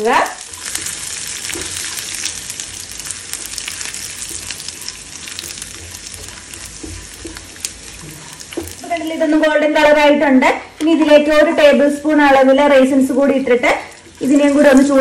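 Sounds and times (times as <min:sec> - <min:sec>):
nuts sizzling in hot fat: 0:00.0 - 0:15.0
spatula stirring in pan: 0:00.4 - 0:10.1, 0:13.2 - 0:15.0.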